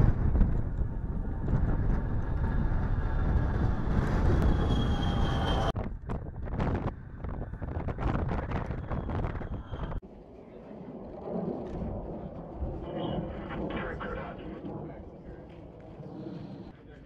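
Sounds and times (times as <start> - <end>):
wind on microphone: 0.0 - 16.7
jet engines roaring with whine: 0.0 - 17.0
jet climbing away: 6.4 - 16.8.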